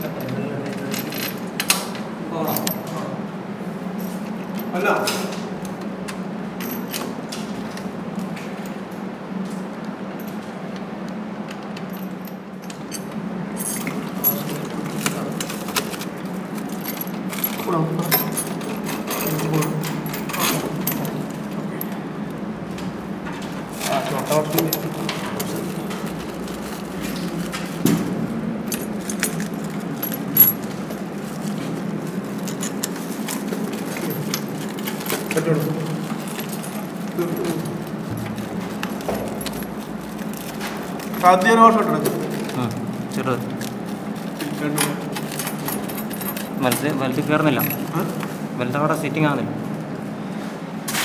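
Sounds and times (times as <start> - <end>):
steady low hum: 0.0 - 50.9
spanner and nut clinking: 11.5 - 22.0, 23.3 - 42.6, 43.4 - 48.3
plastic wrapping rustling: 23.7 - 28.3, 28.9 - 45.9.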